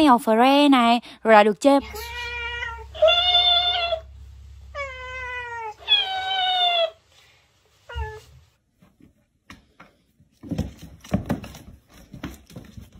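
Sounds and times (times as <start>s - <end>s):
cat meowing: 1.8s - 4.1s, 4.7s - 7.0s.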